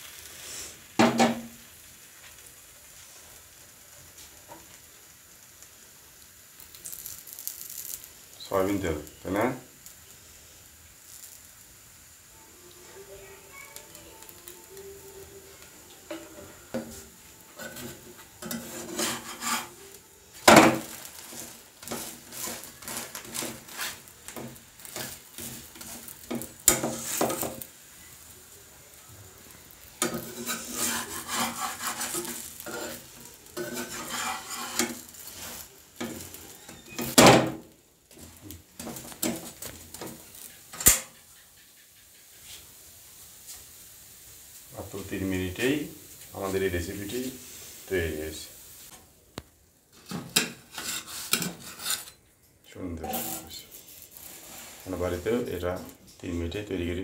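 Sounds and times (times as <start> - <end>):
food frying in oil: 0.0 - 52.2, 52.8 - 57.0
metal spatula scraping a wok: 16.0 - 27.7, 29.7 - 37.2, 38.2 - 42.7, 49.9 - 52.2, 53.0 - 56.1.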